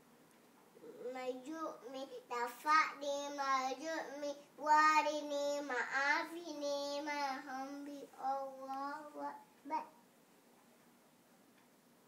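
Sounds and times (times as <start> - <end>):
girl chanting prayer: 0.8 - 10.0.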